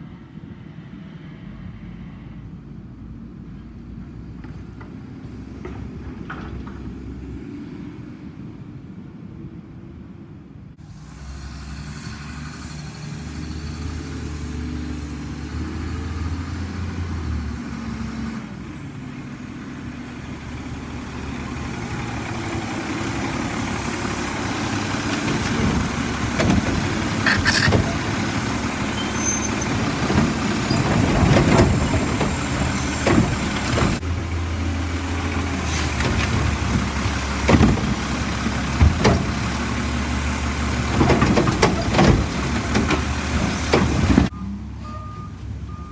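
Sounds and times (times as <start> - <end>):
garbage truck diesel engine rumbling: 10.8 - 45.9
hydraulic arm clanking: 22.3 - 34.0, 35.4 - 44.3.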